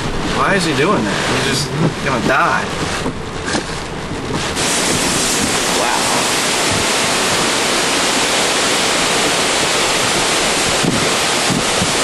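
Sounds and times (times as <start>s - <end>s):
driving rain: 0.0s - 12.0s
hurricane wind rushing: 0.0s - 12.0s
truck rocking in gusts: 0.0s - 12.0s.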